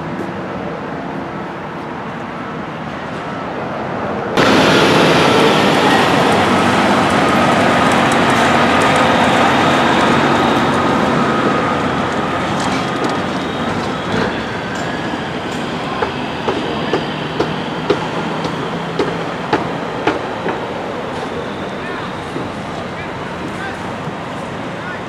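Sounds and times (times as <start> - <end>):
truck and trailer rumbling and rattling: 4.4 - 25.0.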